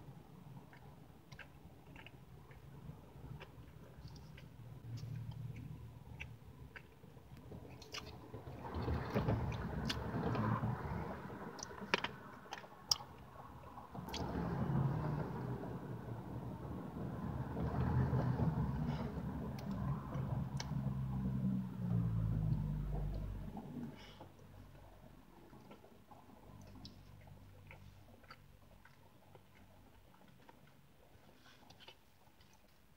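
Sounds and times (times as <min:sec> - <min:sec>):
person chewing food: 0:00.4 - 0:08.3, 0:11.5 - 0:14.3, 0:18.5 - 0:32.9.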